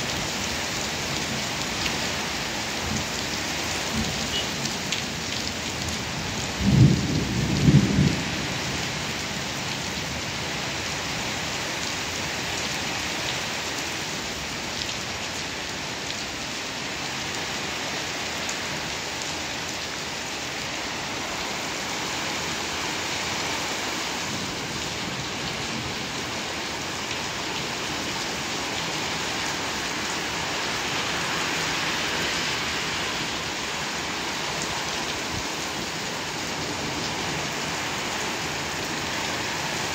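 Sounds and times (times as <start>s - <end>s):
heavy rain on asphalt and cars: 0.0s - 39.9s
thunder rumble: 6.5s - 8.9s.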